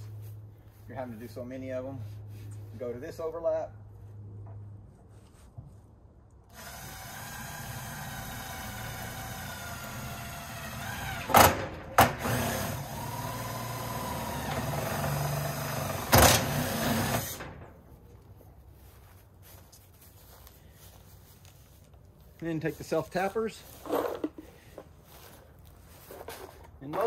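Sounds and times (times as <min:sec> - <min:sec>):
electric drill drilling steel: 0:06.5 - 0:17.4.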